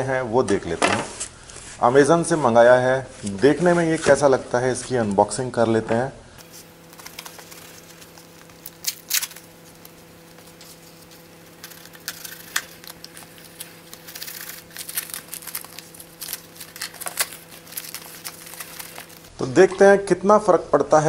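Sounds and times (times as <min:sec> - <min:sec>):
faint steady hum: 0:04.3 - 0:21.0
packing tape peeled off cardboard: 0:06.4 - 0:19.3.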